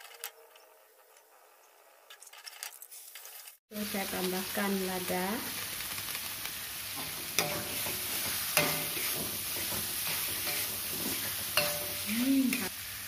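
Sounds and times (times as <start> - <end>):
paste sizzling in a wok: 2.9 - 13.0
spatula clanking against pan: 7.0 - 12.6
metal spatula scraping: 7.0 - 12.7.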